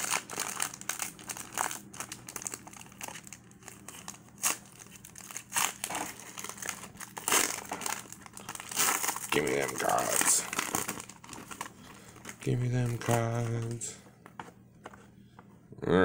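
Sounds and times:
foil wrapper crinkling: 0:00.0 - 0:14.0.

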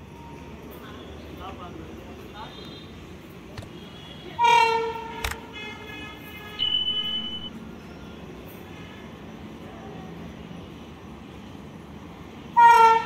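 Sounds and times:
locomotive horn blast: 0:12.6 - 0:13.0.

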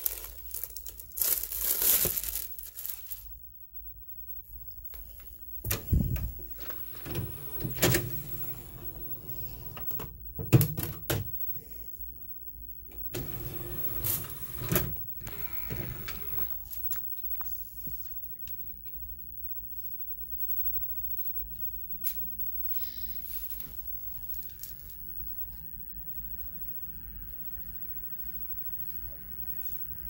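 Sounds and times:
motorised disc tray whirring: 0:13.1 - 0:16.6.

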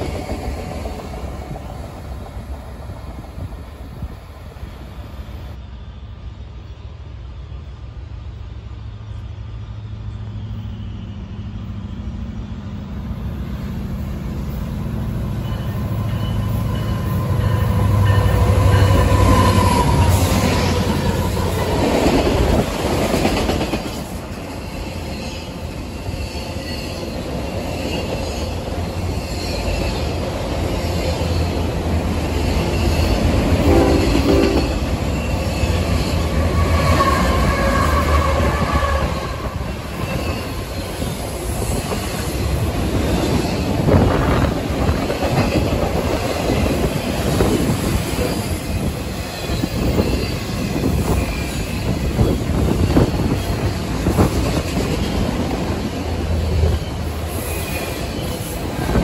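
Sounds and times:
diesel locomotives passing: 0:00.0 - 0:59.0
train horn: 0:15.4 - 0:21.0, 0:33.6 - 0:34.8, 0:36.3 - 0:39.8.

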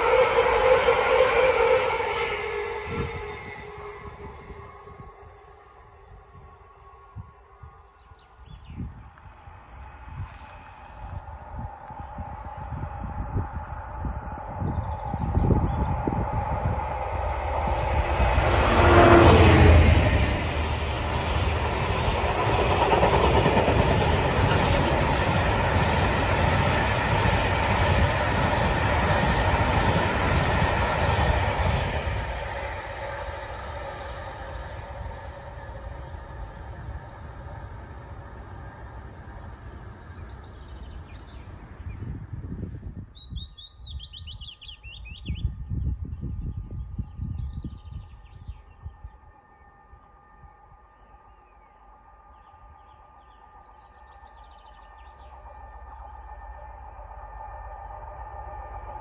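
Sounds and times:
freight train rolling past: 0:00.0 - 0:59.0
birds chirping: 0:51.0 - 0:56.5.

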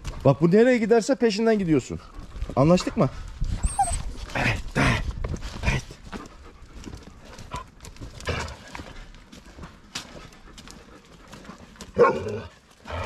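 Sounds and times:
dog barking: 0:12.0 - 0:12.4.

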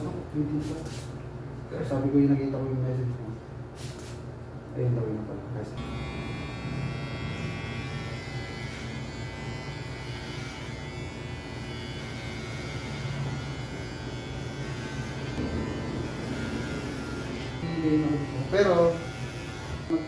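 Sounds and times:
electric hair clippers buzzing: 0:05.8 - 0:20.0.

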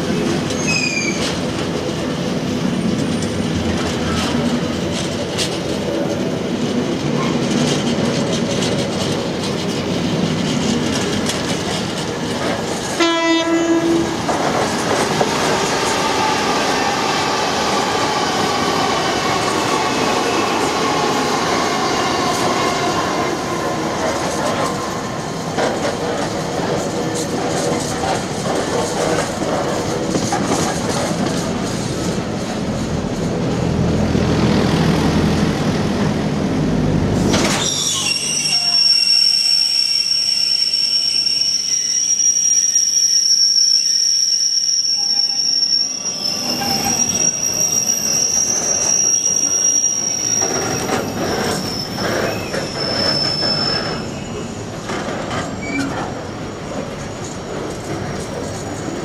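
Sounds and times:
high-pitched wheel squeal: 0:00.5 - 0:01.4, 0:37.5 - 0:54.5.

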